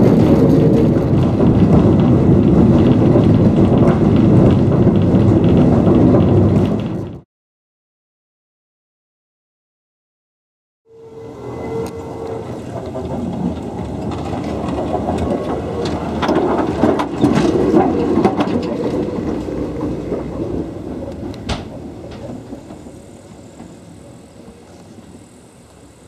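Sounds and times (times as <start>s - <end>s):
tram rumbling past: 0.0s - 7.2s, 10.9s - 26.0s
wheel on rail clicks: 0.0s - 7.2s, 11.8s - 24.0s.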